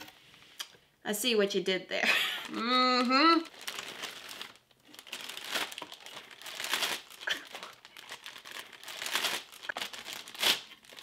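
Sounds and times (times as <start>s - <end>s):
plastic bag crinkling: 2.1s - 11.0s.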